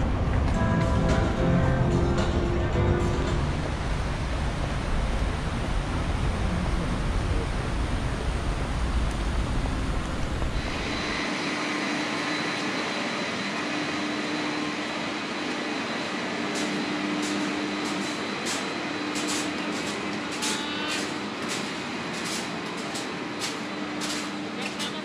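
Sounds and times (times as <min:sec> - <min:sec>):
building machinery hum: 0:00.0 - 0:25.0
footsteps on steel grated stairs: 0:16.4 - 0:25.0.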